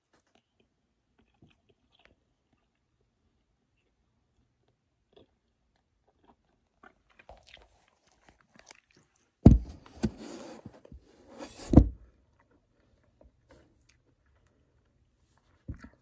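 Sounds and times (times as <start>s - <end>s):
chewing and mouth clicks: 0.0s - 9.4s
phone thumps: 9.5s - 10.1s.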